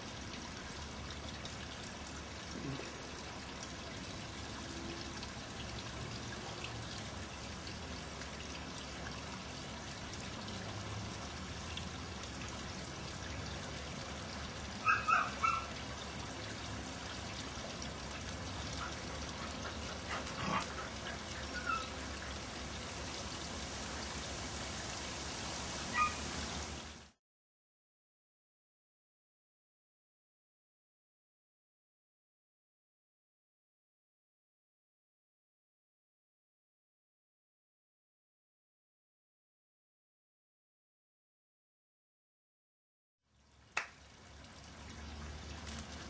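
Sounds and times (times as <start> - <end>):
water trickling: 0.0 - 27.2, 43.3 - 46.0
dog barking: 14.8 - 15.7, 25.9 - 26.2.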